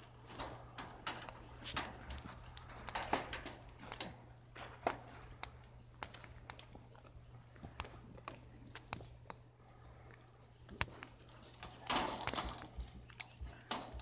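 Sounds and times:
steps on frozen straw ground: 0:01.6 - 0:08.5.

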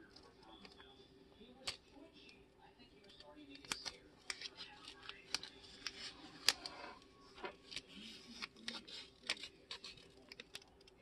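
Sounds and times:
tape peeling crackles: 0:03.6 - 0:10.9.

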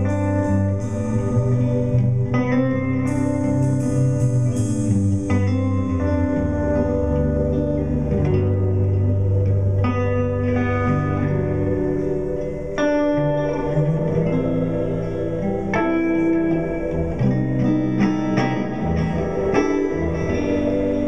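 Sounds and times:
guitar chords: 0:00.0 - 0:21.0
held bass notes: 0:00.0 - 0:21.0
keyboard chords: 0:00.0 - 0:21.0.

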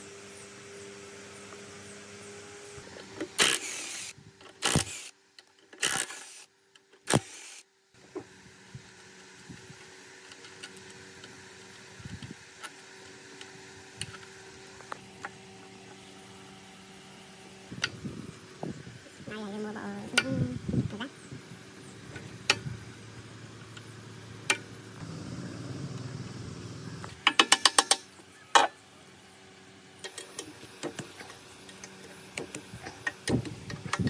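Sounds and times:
steady low hum: 0:13.7 - 0:27.3
metal on metal clicks: 0:27.2 - 0:28.7
metal parts knocking and scraping: 0:27.2 - 0:28.8, 0:30.0 - 0:34.0.

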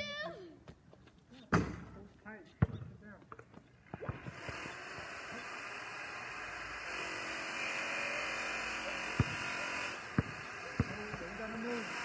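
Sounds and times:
basketball bouncing on pavement: 0:01.5 - 0:05.1, 0:09.0 - 0:11.8.

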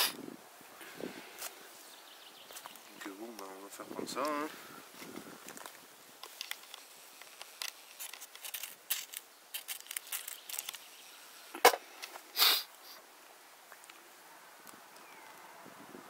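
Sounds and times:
short hiss: 0:00.0 - 0:00.2, 0:11.2 - 0:13.1
fire striker scraping: 0:06.2 - 0:10.8.

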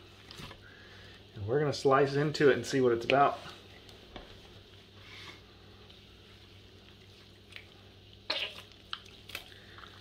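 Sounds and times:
wet crunch: 0:07.4 - 0:10.0.

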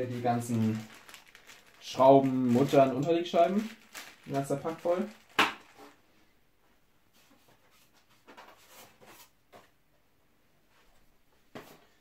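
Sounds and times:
packaging rustling: 0:00.0 - 0:06.0
plastic bag rustling: 0:00.0 - 0:06.0.

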